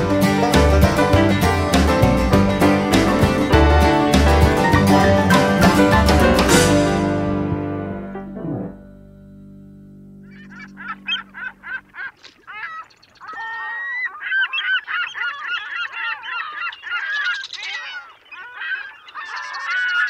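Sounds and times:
music track: 0:00.0 - 0:12.0
flock of birds calling: 0:10.3 - 0:20.0.

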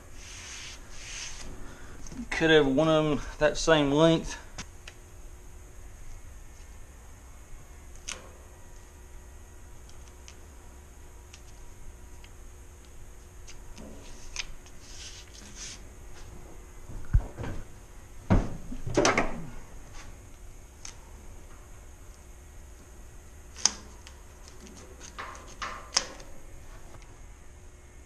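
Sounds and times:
scraping or rustling: 0:00.2 - 0:01.6, 0:13.9 - 0:16.4
thump: 0:18.3 - 0:19.4.

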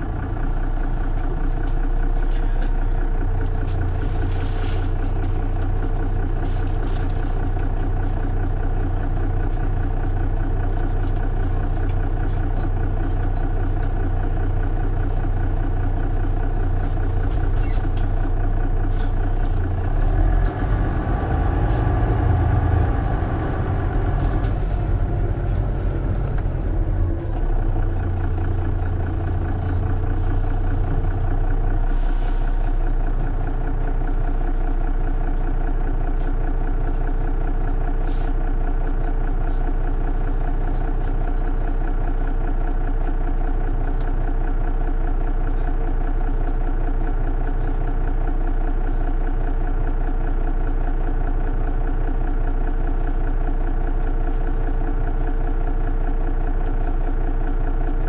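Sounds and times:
bus engine running: 0:00.0 - 0:58.0
deep hum: 0:11.0 - 0:39.0.

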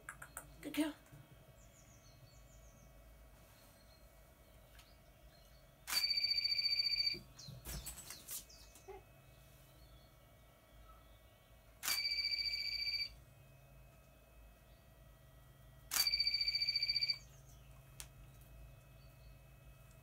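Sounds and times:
shrill trilling ring: 0:16.0 - 0:17.3.

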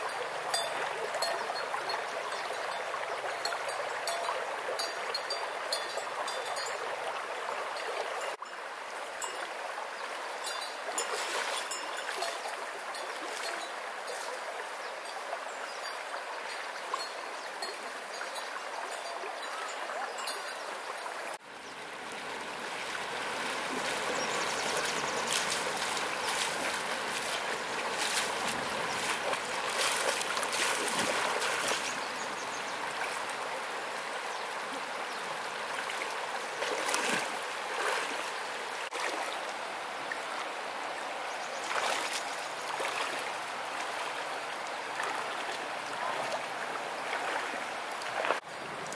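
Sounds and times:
river water flowing over stones: 0:00.0 - 0:48.9
legs wading splashing: 0:11.0 - 0:12.4, 0:22.1 - 0:33.3, 0:36.6 - 0:38.3, 0:41.6 - 0:43.3, 0:45.0 - 0:48.4.

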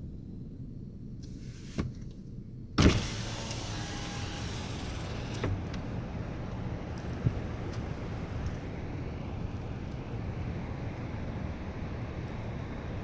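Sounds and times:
car engine idling: 0:03.0 - 0:13.0.

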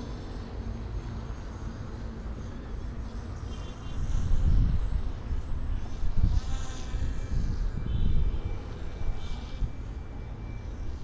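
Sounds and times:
model airplane motor buzzing: 0:00.0 - 0:11.0
wind on microphone: 0:03.9 - 0:10.0.

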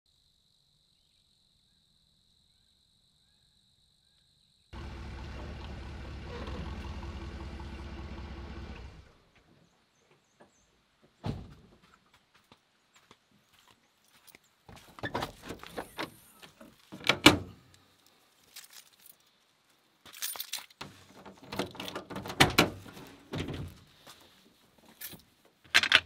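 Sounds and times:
insect trill: 0:00.1 - 0:04.7
faint bird chirps: 0:00.8 - 0:04.7
truck engine running: 0:04.8 - 0:09.2
loud thunk: 0:11.2 - 0:11.6.

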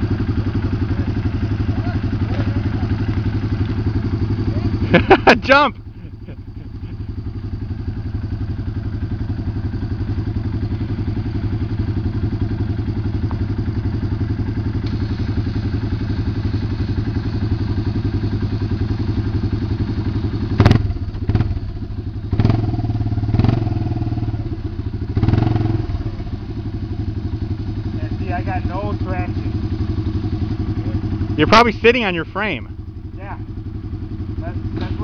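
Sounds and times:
atv engine idling: 0:00.0 - 0:35.0
sharp knocks and thuds: 0:34.7 - 0:35.0.

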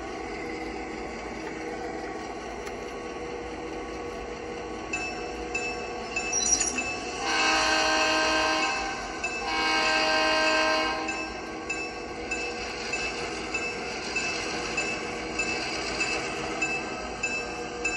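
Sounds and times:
locomotive engine humming: 0:00.0 - 0:17.9
locomotive bell ringing: 0:05.0 - 0:07.3
model locomotive horn blasts: 0:07.2 - 0:11.2.

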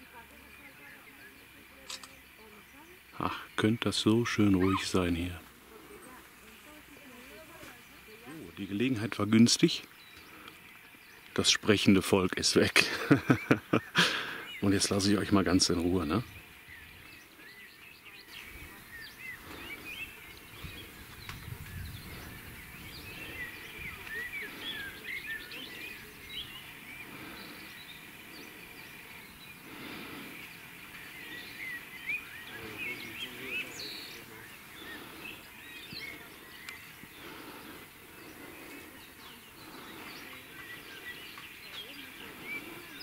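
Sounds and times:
small birds chirping: 0:00.0 - 0:43.0
steady outdoor hiss: 0:00.0 - 0:43.0.

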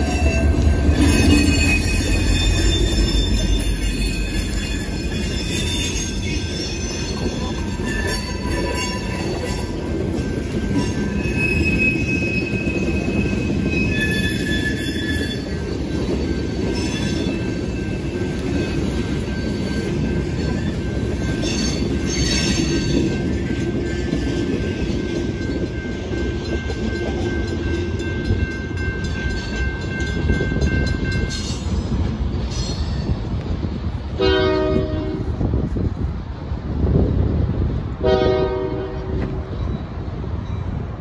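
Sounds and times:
electronic crossing bell: 0:00.0 - 0:11.4
train wheels squealing: 0:00.0 - 0:33.3
freight cars rumbling: 0:00.0 - 0:41.0
locomotive passing: 0:00.0 - 0:41.0
mechanical crossing bell: 0:22.4 - 0:31.6.

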